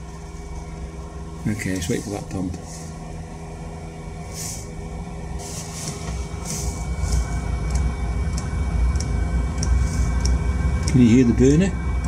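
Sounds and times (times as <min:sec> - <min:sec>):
air heater burner rumble: 0:00.0 - 0:12.0
fuel pump ticking: 0:07.1 - 0:11.4.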